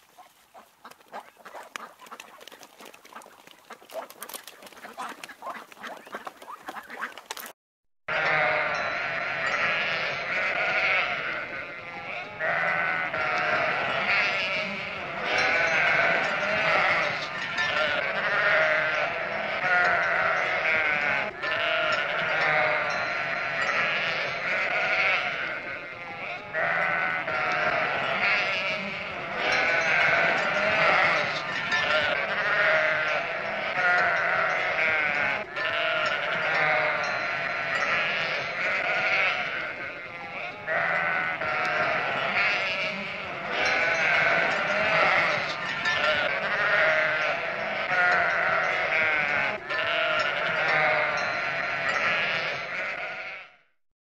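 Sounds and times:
sheep bleating: 0:08.1 - 0:53.6.

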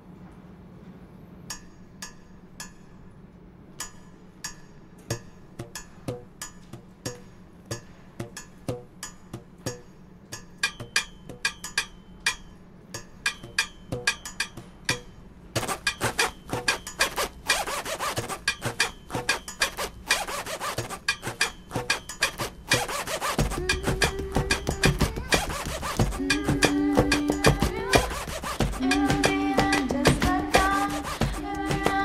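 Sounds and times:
scraping: 0:14.4 - 0:32.0.

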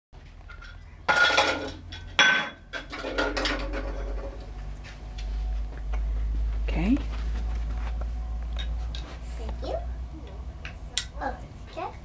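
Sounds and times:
hard objects clattering and clinking: 0:00.3 - 0:04.6.

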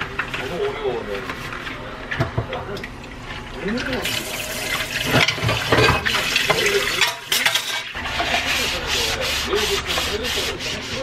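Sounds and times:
tap water running: 0:02.3 - 0:10.1
scrubbing glassware: 0:04.5 - 0:11.0.

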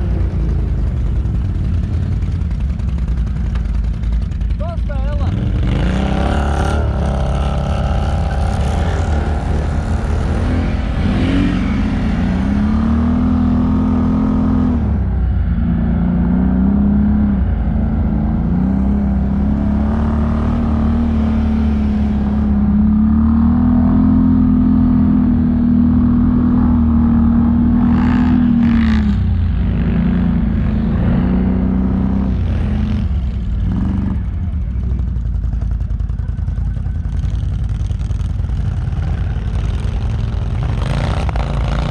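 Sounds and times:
atv engine revving: 0:00.0 - 0:41.9
constant low noise: 0:00.0 - 0:41.9.

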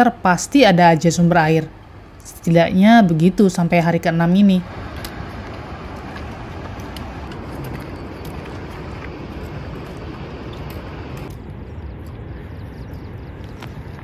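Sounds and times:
wind buffeting microphone: 0:04.1 - 0:14.0.

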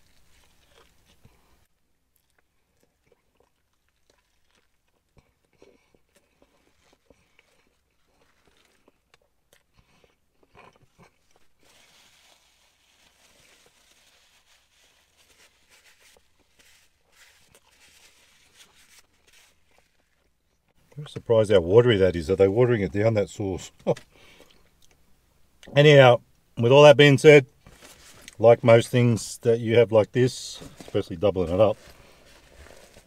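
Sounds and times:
chewing crispy food: 0:00.0 - 0:21.1
paper napkin rustling: 0:11.6 - 0:20.2, 0:30.5 - 0:33.0.

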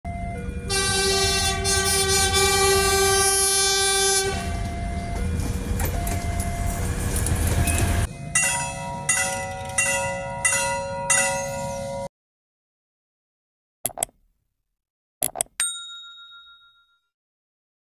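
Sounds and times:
train horn blast: 0:00.7 - 0:04.9
bell-like chime ringing: 0:07.7 - 0:12.1, 0:15.6 - 0:17.1.

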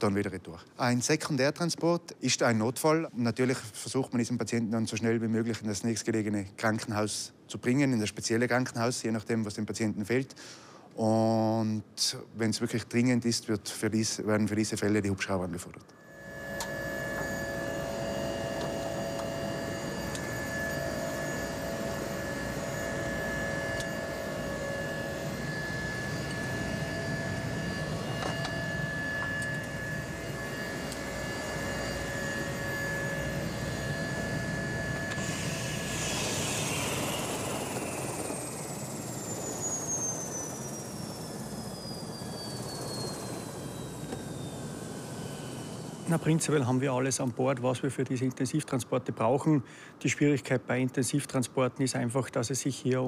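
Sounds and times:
helicopter turbine and rotor: 0:16.0 - 0:47.9
turbine whine falling in pitch: 0:16.0 - 0:48.7.

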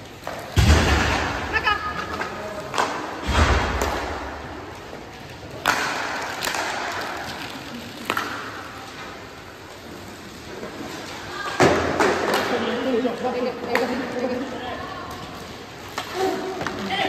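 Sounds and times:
knocks and thuds in rink: 0:00.2 - 0:09.1, 0:10.7 - 0:12.8
loud crack: 0:00.5 - 0:04.8.

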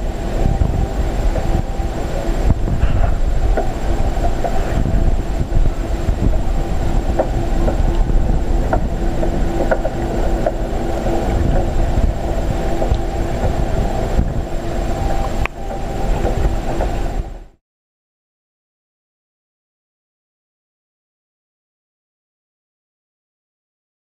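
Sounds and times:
muffled underwater rumble: 0:00.0 - 0:17.6
steady tank equipment hum: 0:00.0 - 0:17.6.

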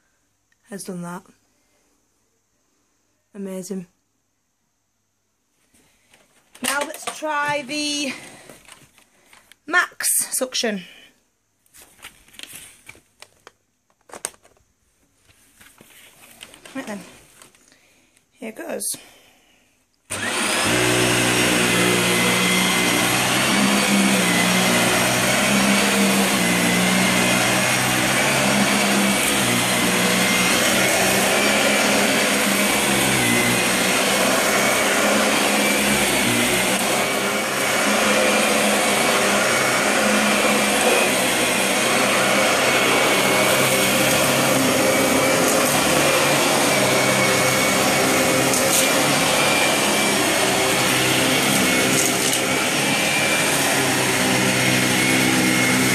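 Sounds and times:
vacuum cleaner motor whine: 0:06.6 - 0:08.6, 0:20.1 - 0:55.9.

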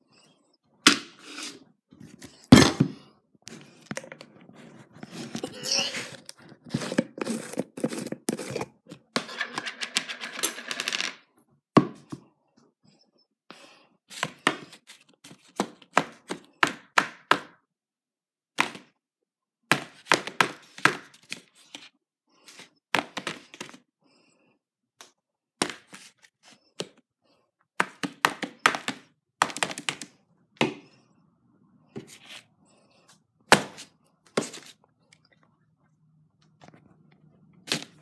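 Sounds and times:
rustling and scraping: 0:01.2 - 0:10.6.

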